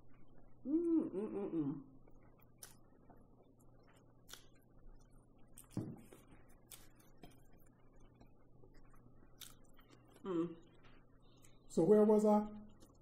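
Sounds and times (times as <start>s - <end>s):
faint chewing mouth clicks: 2.1s - 11.7s.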